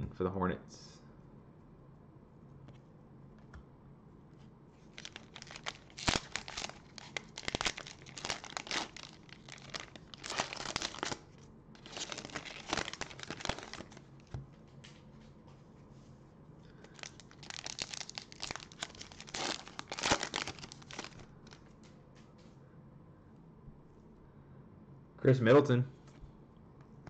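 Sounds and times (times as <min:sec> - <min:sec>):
plastic wrapper tearing and crinkling: 0:04.9 - 0:14.1, 0:16.7 - 0:21.6.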